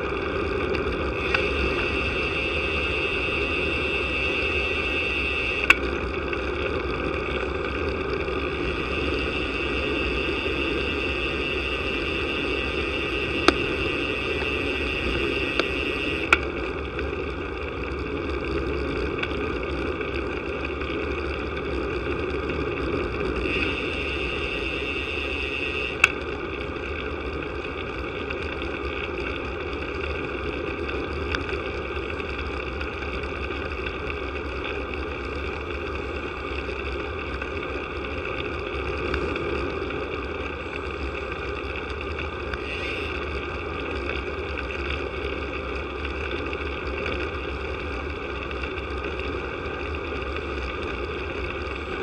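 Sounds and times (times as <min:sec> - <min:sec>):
tyres on tarmac: 0:00.0 - 0:52.0
wind rumble: 0:00.0 - 0:52.0
higher whir: 0:00.7 - 0:16.8, 0:23.3 - 0:26.3.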